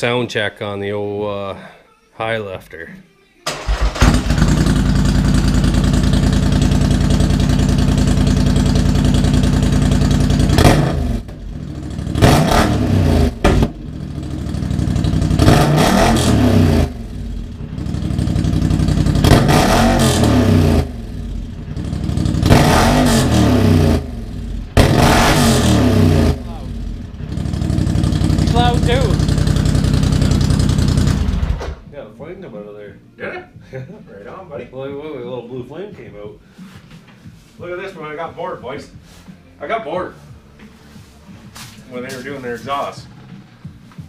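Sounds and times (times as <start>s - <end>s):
atv engine revving: 3.5s - 31.8s.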